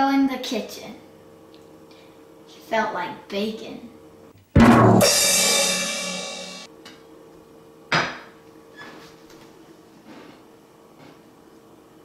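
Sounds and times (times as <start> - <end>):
cymbal crash: 4.6 - 6.7
drum hits: 4.6 - 6.7.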